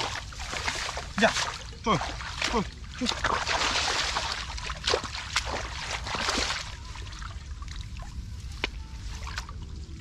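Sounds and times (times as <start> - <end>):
hands splashing in muddy water: 0.0 - 7.3.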